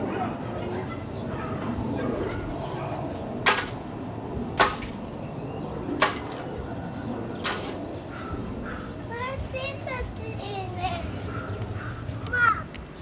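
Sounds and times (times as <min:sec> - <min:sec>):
plastic toy whacking tree: 0:04.6 - 0:05.0.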